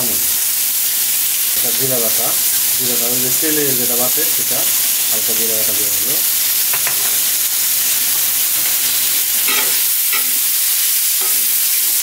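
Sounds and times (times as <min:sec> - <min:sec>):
vegetables sizzling in hot oil: 0:00.0 - 0:12.0
spatula scraping pan: 0:06.6 - 0:10.6.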